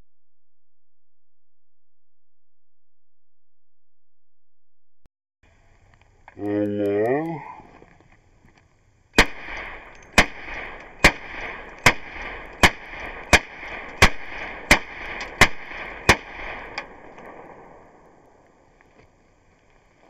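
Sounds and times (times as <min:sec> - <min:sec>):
rifle shots: 0:09.2 - 0:18.2.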